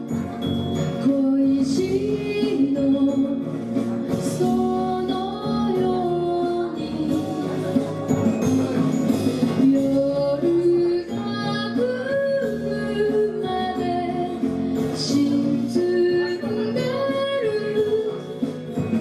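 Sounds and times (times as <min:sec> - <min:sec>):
instrumental accompaniment: 0:00.0 - 0:19.0
woman singing: 0:01.0 - 0:03.5, 0:04.1 - 0:07.8, 0:09.6 - 0:18.5.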